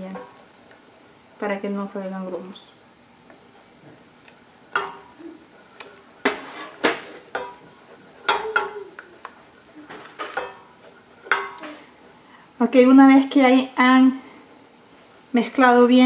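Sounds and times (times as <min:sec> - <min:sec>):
spoon stirring in saucepan: 0:03.2 - 0:12.4
spoon knocking against pan: 0:04.7 - 0:05.1, 0:06.2 - 0:09.4, 0:10.0 - 0:11.7.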